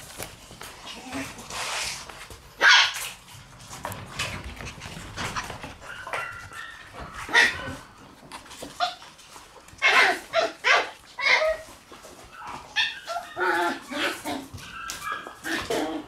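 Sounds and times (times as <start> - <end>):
puppies yipping and whining: 4.9 - 16.0.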